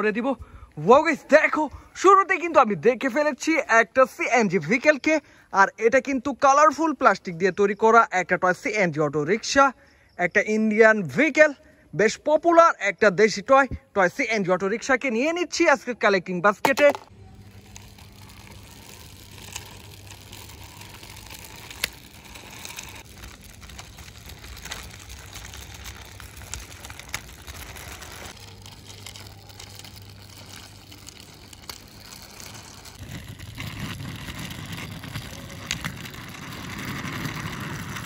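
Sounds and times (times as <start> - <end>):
toy wheels rolling on concrete: 16.6 - 38.0.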